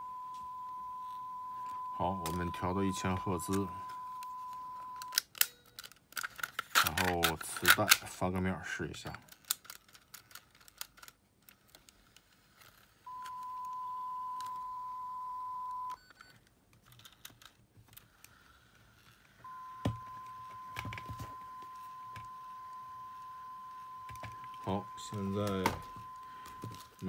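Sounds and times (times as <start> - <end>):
steady test tone: 0.0 - 5.1, 19.5 - 27.0.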